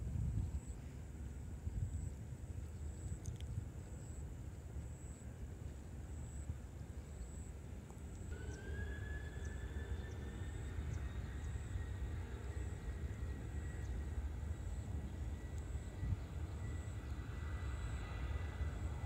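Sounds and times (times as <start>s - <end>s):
jet engines rumbling: 5.6s - 19.0s
jet engine whine rising: 7.3s - 19.0s.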